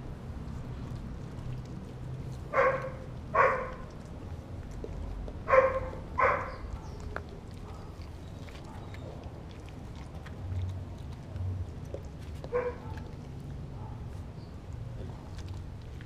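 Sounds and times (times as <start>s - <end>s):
dog barking: 2.5s - 3.8s, 5.5s - 7.0s, 12.5s - 13.1s, 13.8s - 14.0s.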